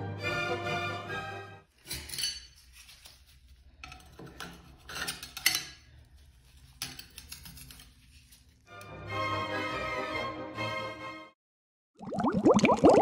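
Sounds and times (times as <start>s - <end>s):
putty knife scraping on ceramic: 1.8s - 8.6s.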